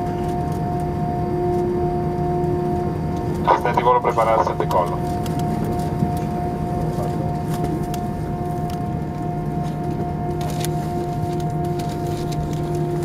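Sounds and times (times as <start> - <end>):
aircraft cabin hum: 0.0 - 13.0
droning tones: 0.0 - 13.0.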